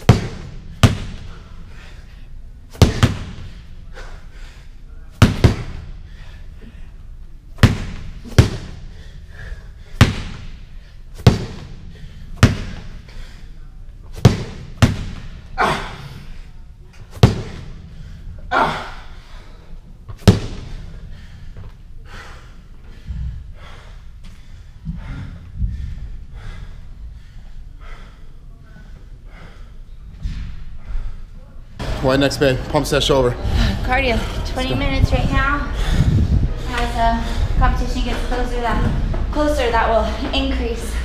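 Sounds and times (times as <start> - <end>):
medicine ball slamming on floor: 0.0 - 1.3, 2.7 - 3.5, 5.2 - 5.9, 7.6 - 8.8, 10.0 - 10.6, 11.2 - 11.8, 12.4 - 13.0, 14.2 - 15.4, 17.2 - 17.7, 20.1 - 20.8.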